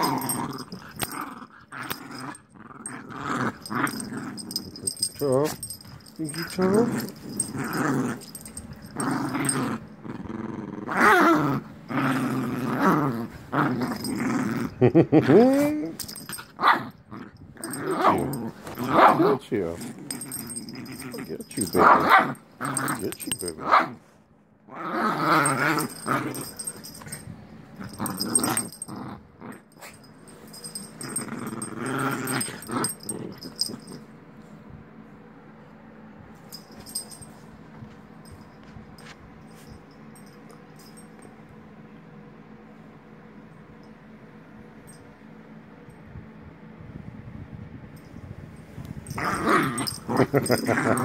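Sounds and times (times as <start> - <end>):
small dog growling: 0.0 - 24.0, 24.7 - 30.0, 30.6 - 34.0, 49.1 - 51.0.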